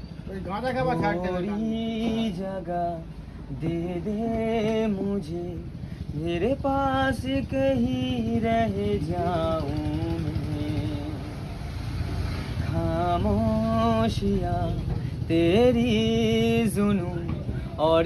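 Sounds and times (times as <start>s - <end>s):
man singing unaccompanied: 0.4s - 11.7s, 12.6s - 18.0s.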